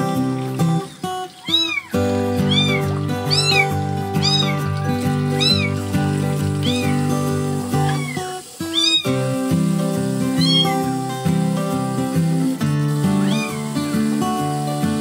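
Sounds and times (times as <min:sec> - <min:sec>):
background music: 0:00.0 - 0:08.0
kitten mewing: 0:01.4 - 0:04.7, 0:05.3 - 0:05.8, 0:06.6 - 0:07.1, 0:07.8 - 0:09.3, 0:10.4 - 0:10.9, 0:13.2 - 0:13.7.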